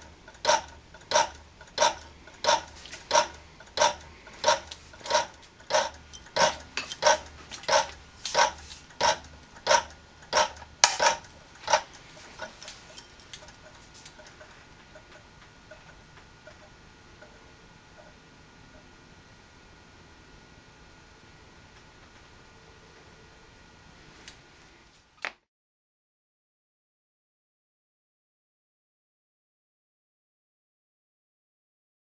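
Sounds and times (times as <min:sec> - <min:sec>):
reflector arm clacking: 0:00.3 - 0:15.9.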